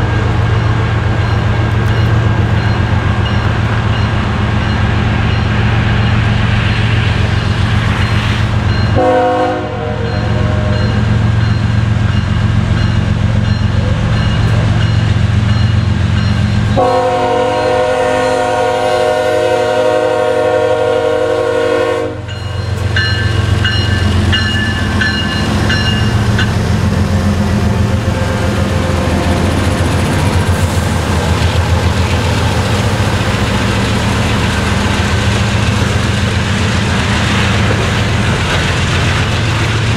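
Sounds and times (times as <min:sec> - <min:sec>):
crossing bell dinging: 0:00.0 - 0:18.8, 0:22.2 - 0:26.8
diesel locomotive engine drone: 0:00.0 - 0:39.9
train air horn blasts: 0:09.0 - 0:10.8, 0:16.8 - 0:22.3, 0:27.8 - 0:29.4.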